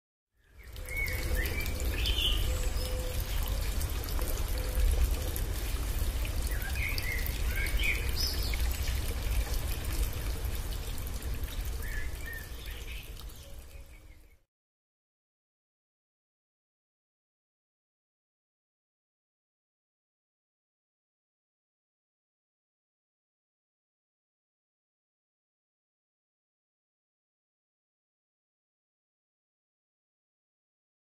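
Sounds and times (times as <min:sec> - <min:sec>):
waterfall pouring: 0:00.6 - 0:14.4.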